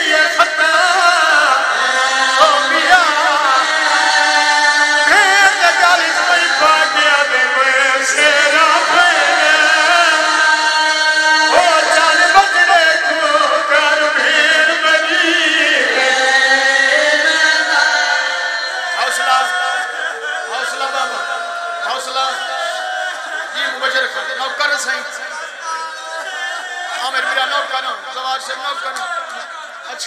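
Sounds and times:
man chanting into a microphone: 0:00.0 - 0:18.2, 0:23.4 - 0:25.8.

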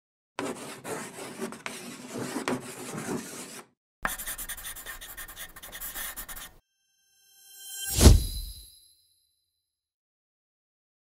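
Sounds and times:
scratchy scribbling sound effects: 0:00.4 - 0:06.6.

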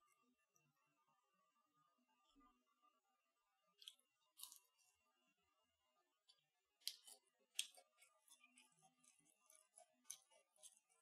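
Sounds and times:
crunchy chewing: 0:03.8 - 0:04.9, 0:06.8 - 0:11.0.

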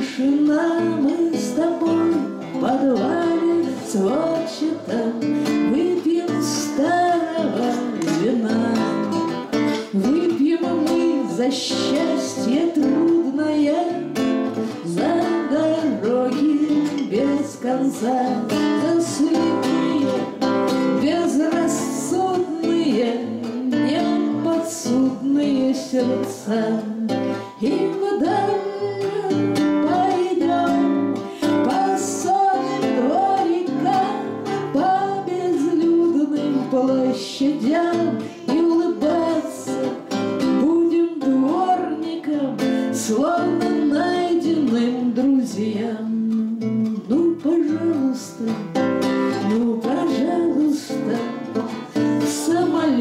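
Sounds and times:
strummed classical guitar: 0:00.0 - 0:53.0
woman singing: 0:00.0 - 0:53.0.

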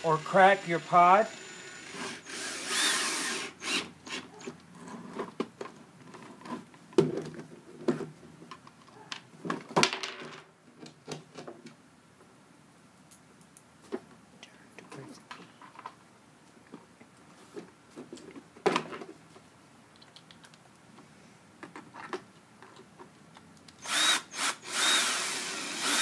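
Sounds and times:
plastic parts knocking on wooden table: 0:09.5 - 0:11.5.

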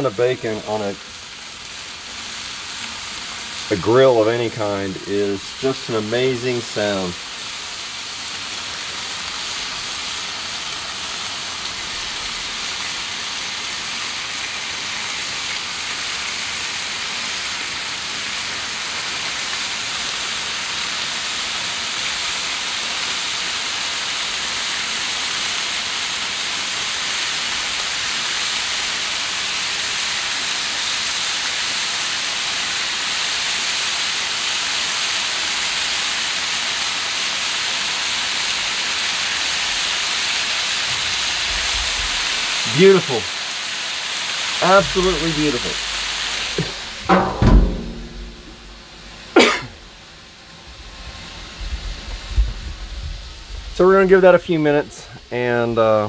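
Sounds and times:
bacon sizzling on a griddle: 0:00.0 - 0:47.0, 0:48.6 - 0:56.0.

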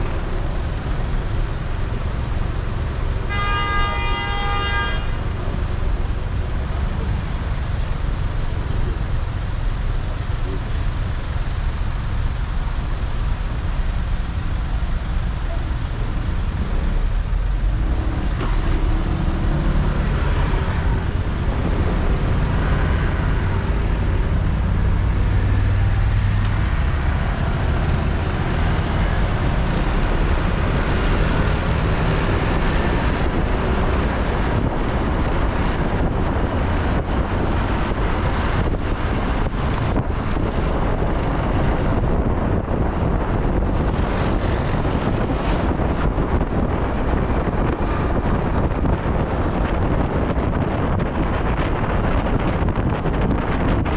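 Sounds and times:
car engine and road rumble: 0:00.0 - 0:53.9.

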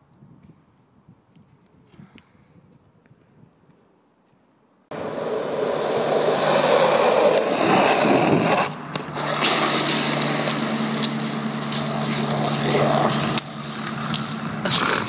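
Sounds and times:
longboard wheels scraping asphalt: 0:04.9 - 0:15.0
low hum: 0:04.9 - 0:15.0.

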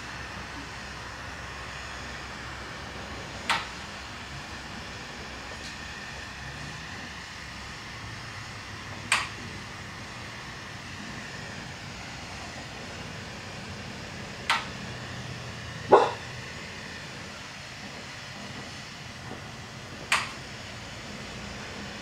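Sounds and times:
torch hissing: 0:00.0 - 0:22.0.

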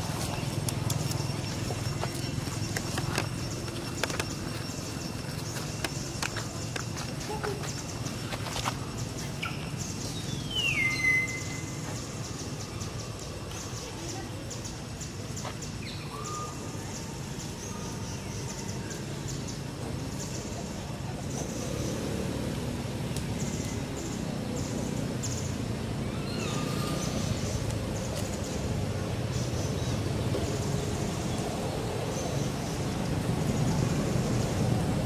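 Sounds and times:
high bird chirps: 0:09.4 - 0:12.1.

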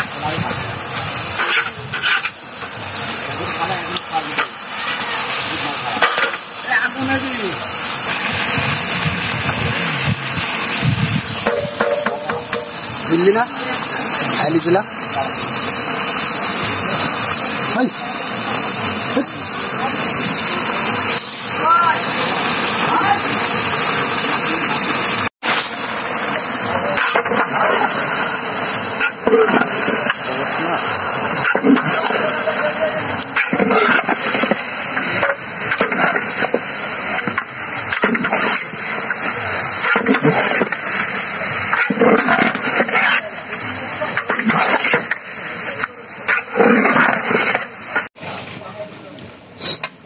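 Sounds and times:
meat sizzling in a pot: 0:00.0 - 0:48.2
people's voices: 0:00.0 - 0:50.0
steady hiss: 0:00.0 - 0:50.0
metal spatula stirring in pot: 0:01.3 - 0:02.4, 0:33.2 - 0:39.2.

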